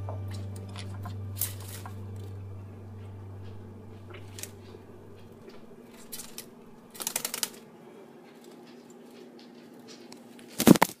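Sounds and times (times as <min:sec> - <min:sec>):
bird wings flapping: 0:06.0 - 0:07.6.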